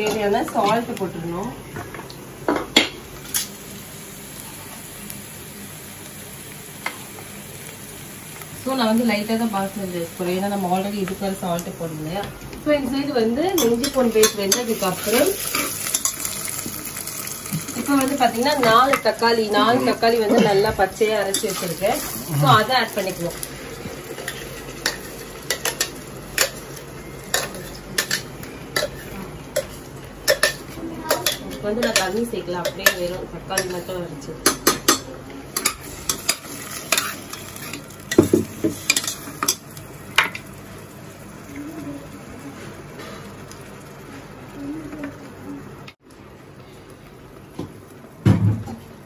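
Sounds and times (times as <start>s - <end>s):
food sizzling in a pan: 0.0s - 49.0s.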